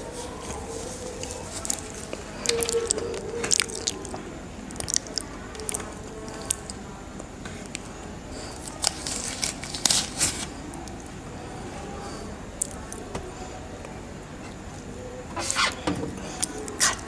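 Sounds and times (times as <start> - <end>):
wet chewing: 0.2 - 6.8.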